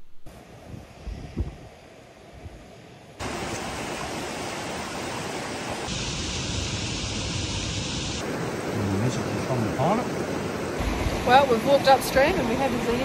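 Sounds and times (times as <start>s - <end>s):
bright hiss: 3.2s - 12.4s
mountain river rushing: 3.2s - 13.0s.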